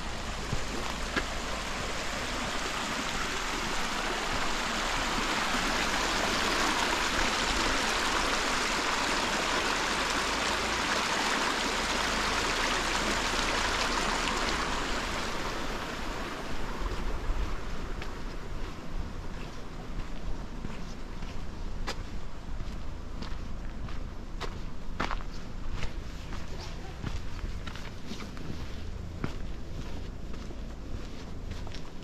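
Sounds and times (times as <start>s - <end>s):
creek rushing over rocks: 0.0s - 19.1s.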